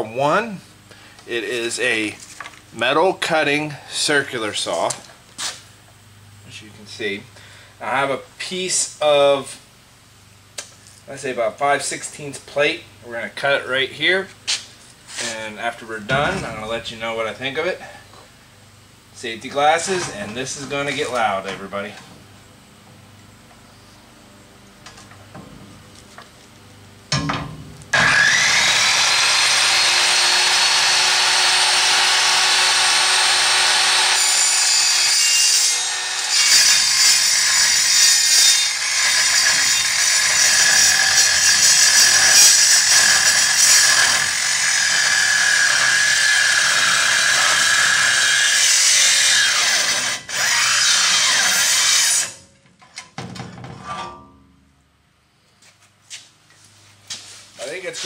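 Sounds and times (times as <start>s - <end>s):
metal-cutting circular saw whine: 28.0s - 52.4s.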